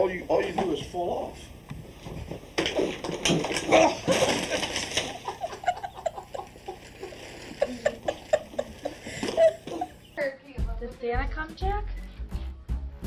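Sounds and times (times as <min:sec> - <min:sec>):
person falling with clatter and thump: 0:02.2 - 0:05.8
bursts of laughter: 0:04.0 - 0:10.2.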